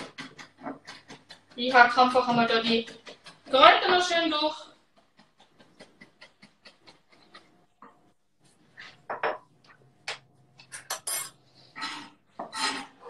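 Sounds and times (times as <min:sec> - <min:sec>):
kitchen knocks and clinks: 0:09.1 - 0:11.4.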